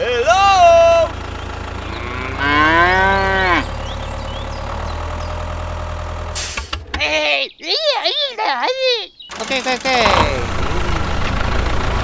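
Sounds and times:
low engine hum: 0:00.0 - 0:06.4, 0:09.3 - 0:12.0
cow mooing: 0:01.8 - 0:03.7.

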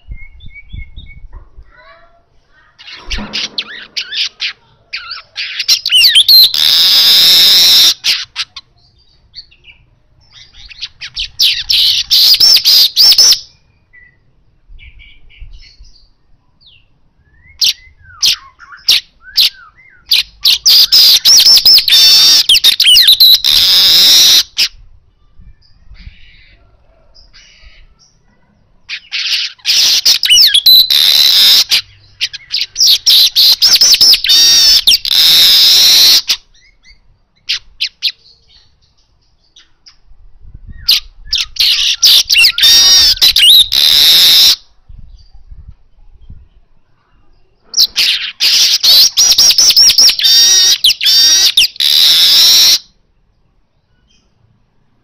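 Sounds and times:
weaver bird chattering song: 0:02.8 - 0:14.2, 0:28.9 - 0:40.0, 0:47.8 - 0:52.8
short bird calls: 0:47.1 - 0:53.0.

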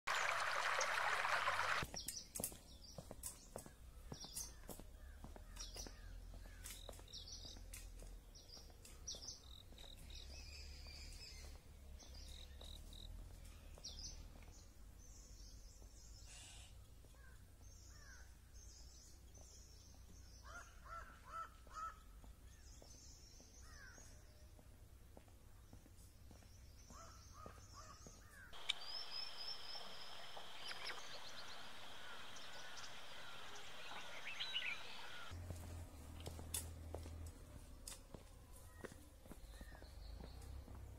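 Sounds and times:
stream rushing over stones: 0:00.1 - 0:01.8, 0:28.6 - 0:35.3
short low bird calls: 0:26.9 - 0:35.3
high bird chirps: 0:28.5 - 0:35.3.

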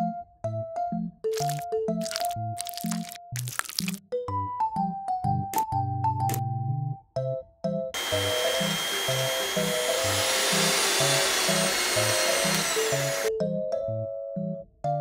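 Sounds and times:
small electric motor whirring: 0:08.0 - 0:13.3.

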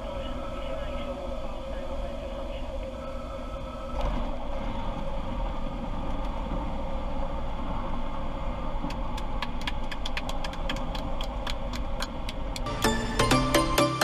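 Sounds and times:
plane engine and propeller: 0:04.0 - 0:13.4.

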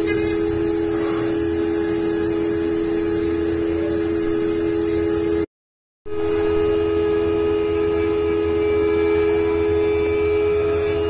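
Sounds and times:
engraving machine spindle humming: 0:00.0 - 0:05.5.

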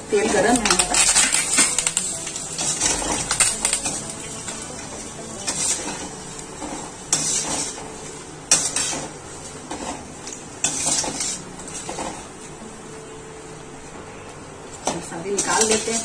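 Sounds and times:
oil sizzling: 0:00.0 - 0:13.0
metal spoon scraping a pan: 0:00.6 - 0:07.8, 0:10.6 - 0:12.1.

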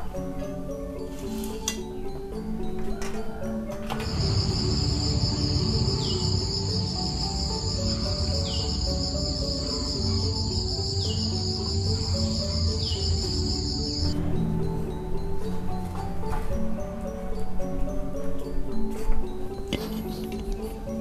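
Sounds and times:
soft background music: 0:00.0 - 0:21.0
insects chirring drone: 0:03.5 - 0:16.1.

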